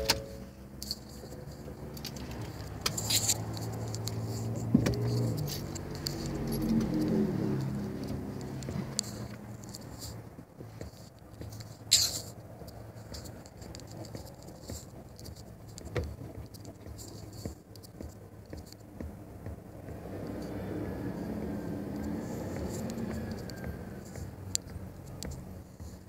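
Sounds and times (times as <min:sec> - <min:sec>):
tapping on touchscreen phone: 0:12.5 - 0:26.0.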